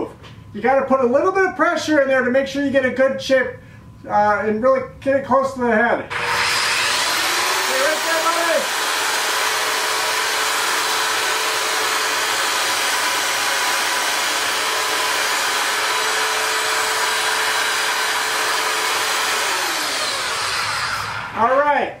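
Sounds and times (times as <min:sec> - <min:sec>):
electric belt sander running: 0:06.1 - 0:21.4.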